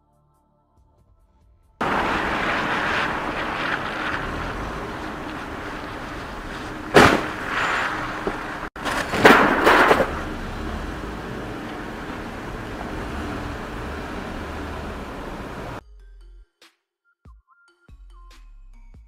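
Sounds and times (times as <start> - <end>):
car crash bangs: 1.8 - 15.8
road noise: 1.8 - 15.8.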